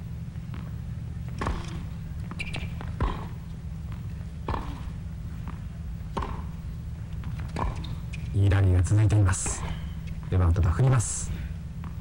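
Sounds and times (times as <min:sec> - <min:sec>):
tennis racket hits: 0:04.4 - 0:04.9, 0:06.1 - 0:06.6.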